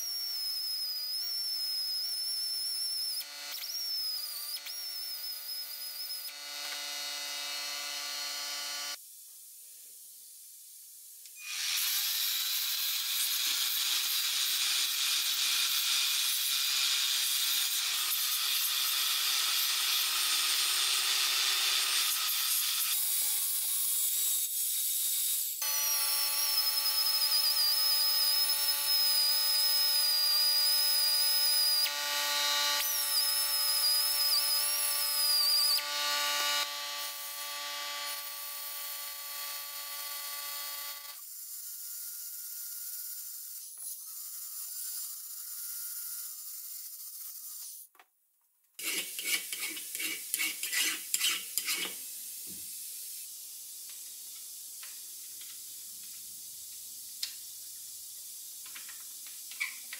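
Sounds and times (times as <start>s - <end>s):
power tool motor whine: 0.6s - 9.0s
hand file on cast iron: 48.8s - 52.0s.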